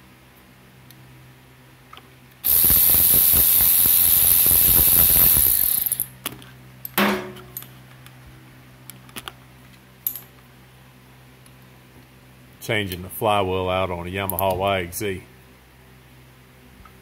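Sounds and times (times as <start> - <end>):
cordless ratchet whining and clicking: 2.4 - 6.1.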